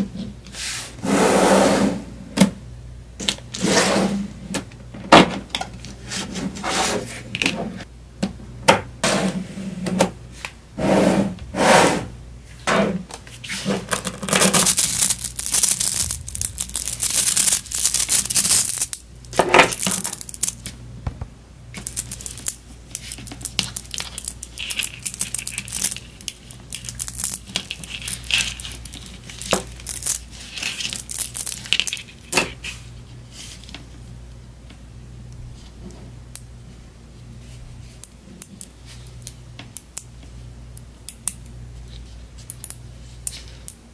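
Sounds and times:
magnetic balls clicking and clattering: 0:13.7 - 0:20.8, 0:21.7 - 0:32.6, 0:42.4 - 0:43.8.

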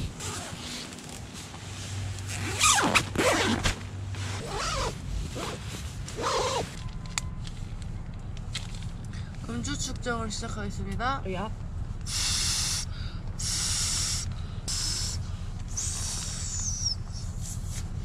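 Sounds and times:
zipper rasping: 0:00.2 - 0:01.1, 0:02.2 - 0:06.8.

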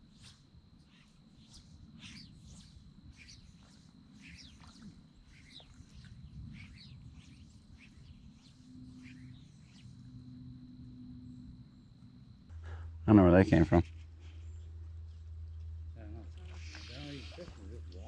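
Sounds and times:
thin steady high tone: 0:00.0 - 0:18.0
small birds chirping: 0:00.9 - 0:10.5.

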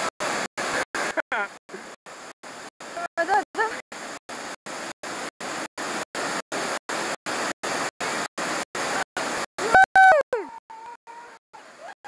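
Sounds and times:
stream water rushing: 0:00.0 - 0:12.0
person shouting: 0:09.6 - 0:10.6.

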